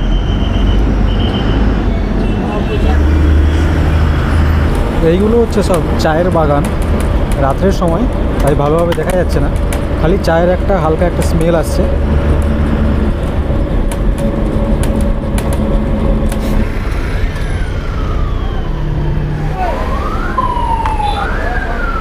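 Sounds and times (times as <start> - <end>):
bus diesel engine running: 0.0 - 20.7
siren-like wail: 16.6 - 22.0.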